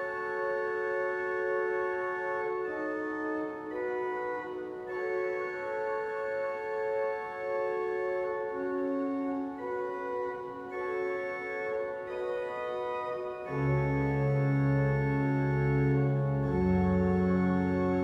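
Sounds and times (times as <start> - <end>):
pipe organ chords: 0.0 - 18.0
deep organ bass note: 13.5 - 18.0.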